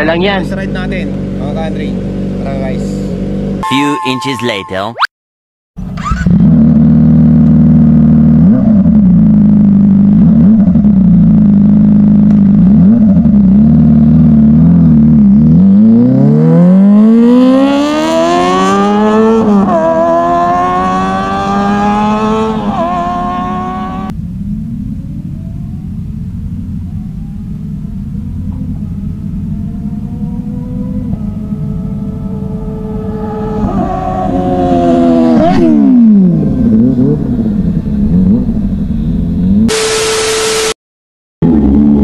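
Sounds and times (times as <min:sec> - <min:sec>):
motorcycle engine revving: 0:00.0 - 0:03.6, 0:05.8 - 0:40.7, 0:41.4 - 0:42.0
motorcycle accelerating through gears: 0:05.8 - 0:39.8.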